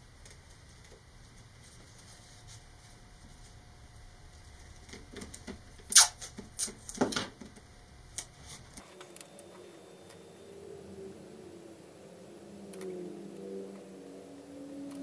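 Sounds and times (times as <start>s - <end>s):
masking tape ripping: 5.9s - 7.0s.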